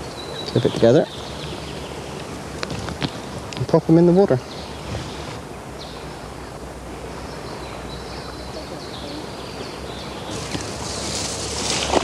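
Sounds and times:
outdoor background hiss: 0.0 - 12.0
rustling through grass: 0.8 - 3.6, 4.5 - 6.2, 10.1 - 12.0.

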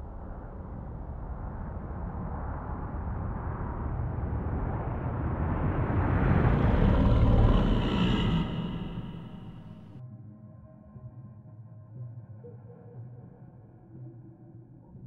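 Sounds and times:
low rumbling noise: 5.6 - 10.0.

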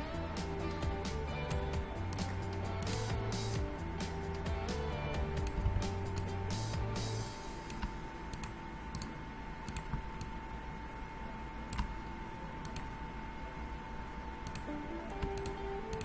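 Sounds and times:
computer mouse clicking: 1.5 - 3.2, 5.4 - 6.3, 7.7 - 10.3, 11.7 - 12.0, 12.6 - 12.9, 14.4 - 16.0.

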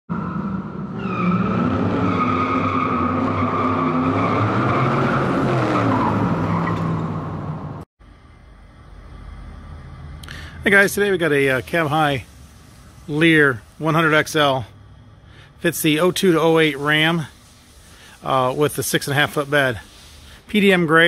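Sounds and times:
car engine revving: 0.1 - 7.8
quiet outdoor background: 7.4 - 21.0.

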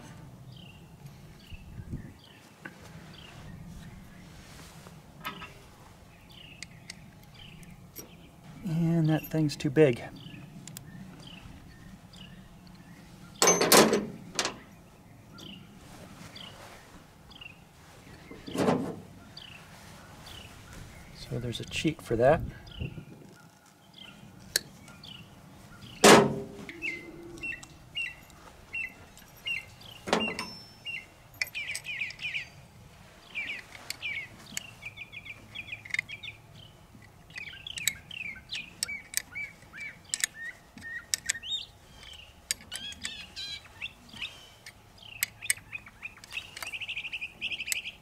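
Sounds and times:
songbirds chirping: 0.0 - 48.0
metallic clicks of hand tools: 38.8 - 41.4.

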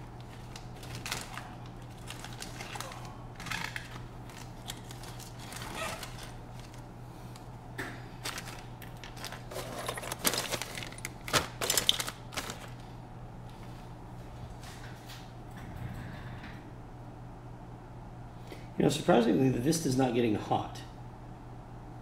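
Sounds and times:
steady low hum: 0.0 - 22.0
small hard objects clattering: 8.2 - 12.8.

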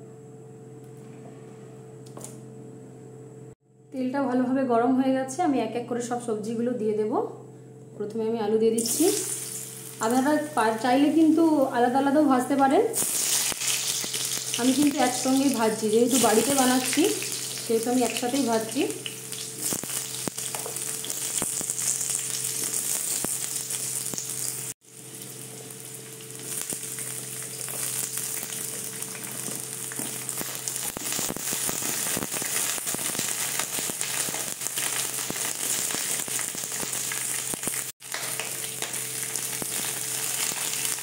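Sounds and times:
vegetables sizzling in hot oil: 8.8 - 41.0.

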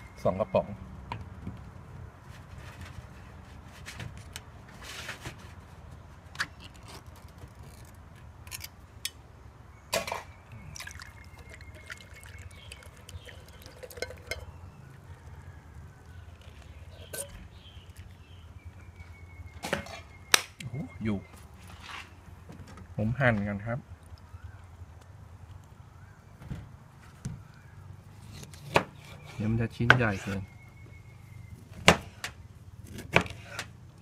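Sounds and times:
liquid pouring into bowl: 10.6 - 14.5.

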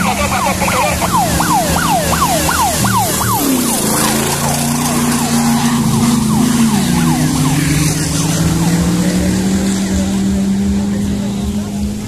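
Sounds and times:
buggy engine running hard: 0.0 - 12.0.

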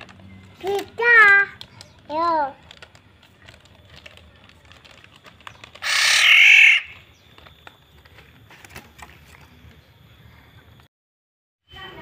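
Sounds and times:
bird harsh nasal call: 5.8 - 7.0.

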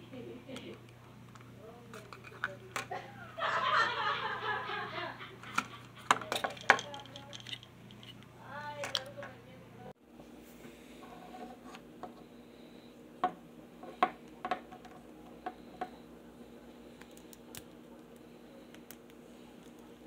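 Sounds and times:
faint toy handling: 5.5 - 9.3.

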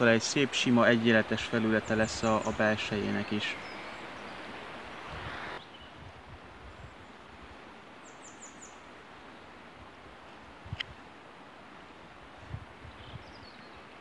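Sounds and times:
steady outdoor hiss: 0.0 - 14.0
bird chirping: 1.5 - 4.5, 8.0 - 8.8, 12.9 - 14.0.

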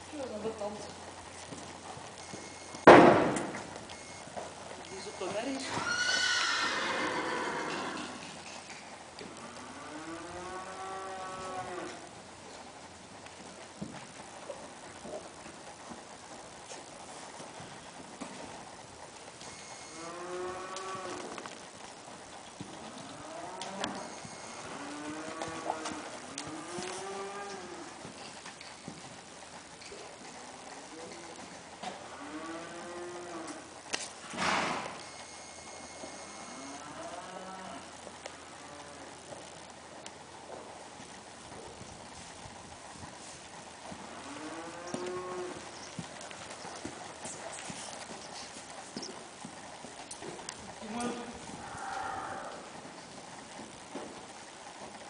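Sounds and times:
drawn-out animal call: 0.0 - 55.0
cattle mooing: 9.4 - 12.1, 19.8 - 21.4, 22.8 - 28.0, 32.0 - 33.6, 35.6 - 39.2, 44.1 - 45.7, 50.8 - 52.8
hoofbeats on sand: 11.3 - 31.7, 40.4 - 55.0.

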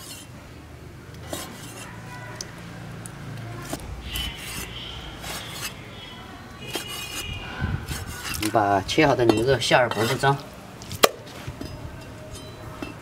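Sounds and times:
cleaver slicing meat: 3.6 - 5.8, 6.7 - 7.3.

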